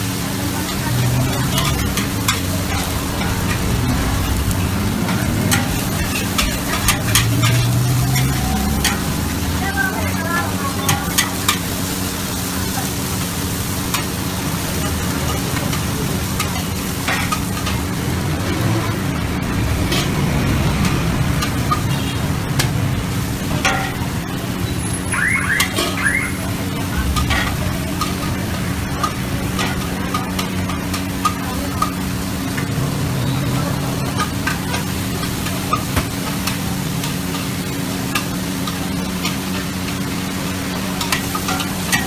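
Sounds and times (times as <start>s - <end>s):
food sizzling in a wok: 0.0s - 42.0s
metal spatula scraping wok: 0.5s - 9.2s, 19.8s - 22.7s, 25.5s - 26.1s
low hum: 1.4s - 7.8s.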